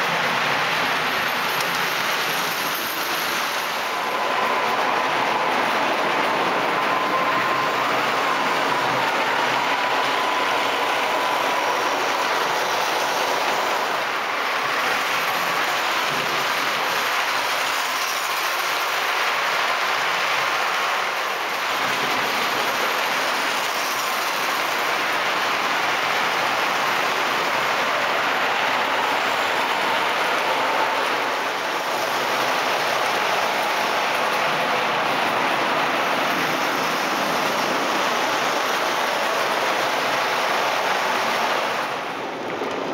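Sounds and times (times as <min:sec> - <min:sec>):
model train wheels clattering: 0:00.0 - 0:42.9.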